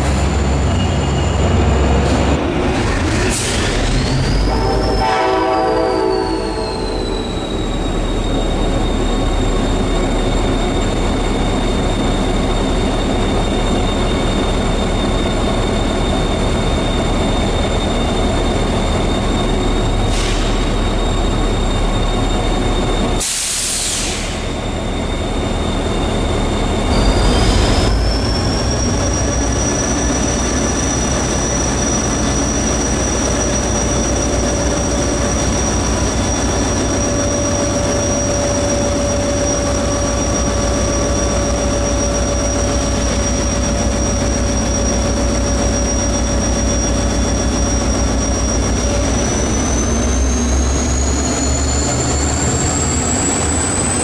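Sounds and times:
locomotive engine rumble: 0.0s - 54.0s
rising whine: 24.8s - 32.0s.

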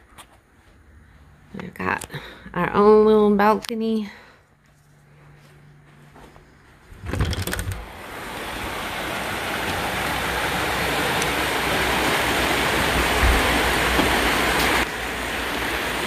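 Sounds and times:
creek water rushing: 7.9s - 16.0s.

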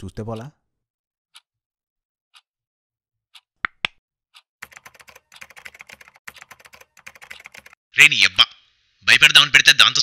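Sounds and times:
laptop keyboard typing: 3.7s - 7.8s.

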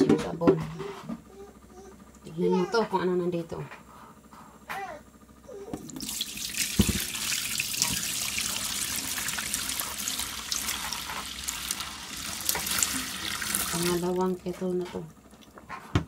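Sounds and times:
water pouring into a metal sink: 6.0s - 14.2s.

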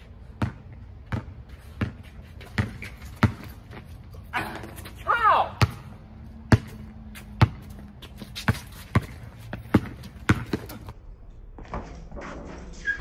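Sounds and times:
basketball bouncing on hard court: 0.3s - 3.8s, 5.6s - 10.9s.

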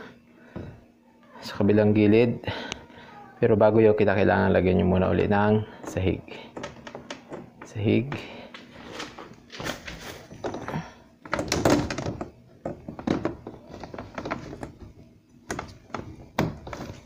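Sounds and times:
plastic panels knocking: 6.4s - 8.3s, 9.5s - 17.0s.

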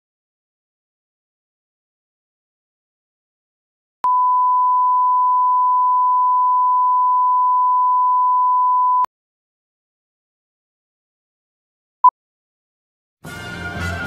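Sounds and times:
sine wave reference tone: 4.0s - 9.1s.

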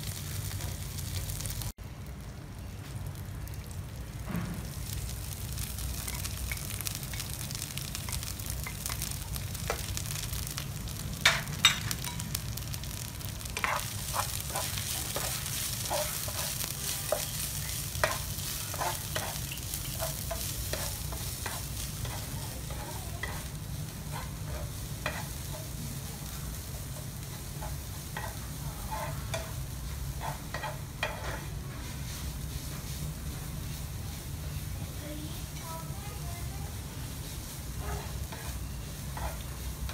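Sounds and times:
paste sizzling in a wok: 0.0s - 39.9s
wooden spoon scraping a pan: 13.4s - 25.8s, 26.9s - 34.6s, 37.2s - 39.9s.

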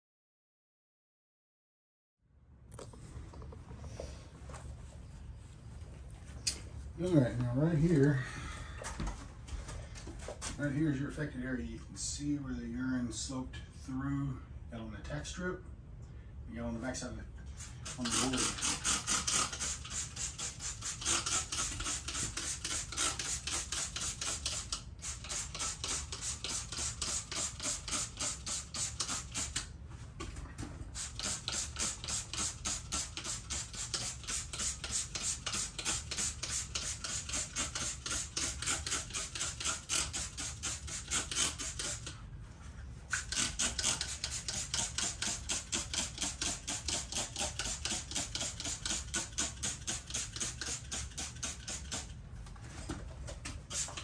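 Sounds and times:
spray bottle hissing sprays: 17.6s - 29.7s, 31.0s - 42.1s, 43.1s - 52.1s, 53.6s - 54.0s.

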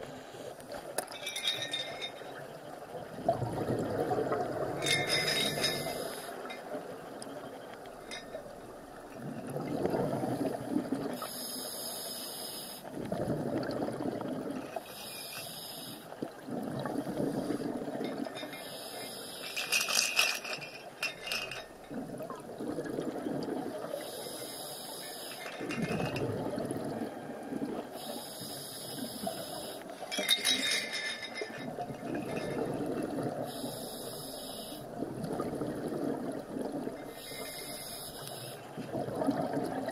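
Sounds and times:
scuba regulator inhale hiss: 11.2s - 12.9s, 14.9s - 16.1s, 18.6s - 19.6s, 23.9s - 25.4s, 28.0s - 29.9s, 33.5s - 34.9s, 37.1s - 38.7s.

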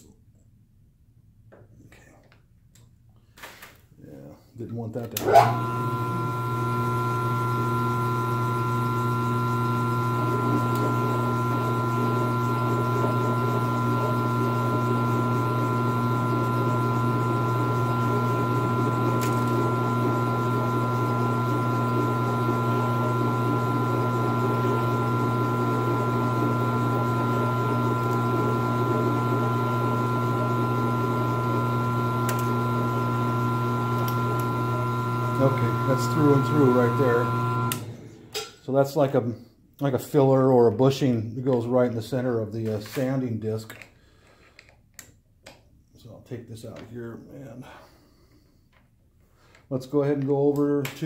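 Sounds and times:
milling machine humming: 5.2s - 38.4s.

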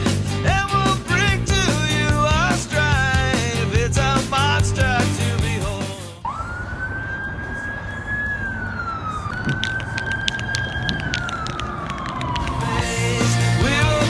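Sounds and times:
emergency vehicle siren wailing: 6.2s - 14.0s
traffic noise: 6.2s - 14.0s.

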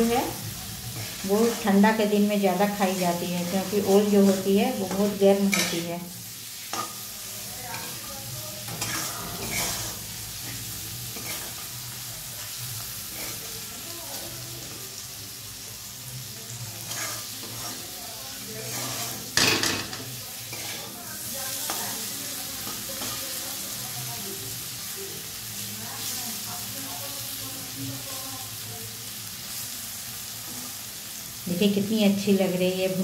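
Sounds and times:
food sizzling in oil: 0.0s - 33.0s
metal spatula scraping pan: 0.9s - 5.9s, 6.6s - 11.7s, 12.4s - 13.6s, 16.8s - 21.0s.

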